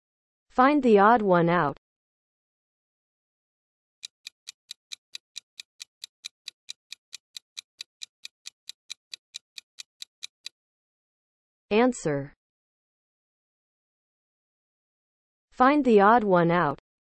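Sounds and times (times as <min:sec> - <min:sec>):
clock ticking rapidly: 0:04.0 - 0:10.5.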